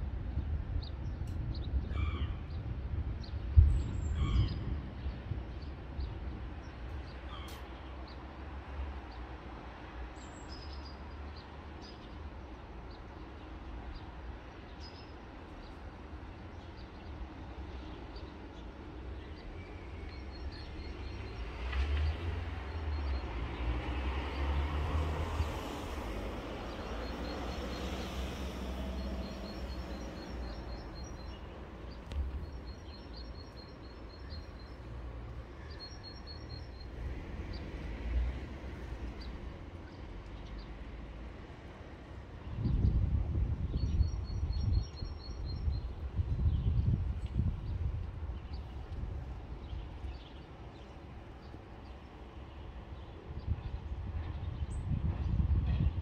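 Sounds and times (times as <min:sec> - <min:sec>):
low city hum: 0:00.0 - 0:56.0
small birds chirping: 0:26.6 - 0:36.9.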